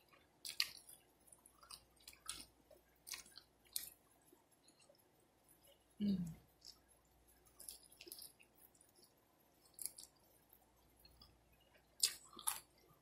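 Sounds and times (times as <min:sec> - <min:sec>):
wet chewing mouth clicks: 0:00.1 - 0:04.0, 0:11.0 - 0:12.9.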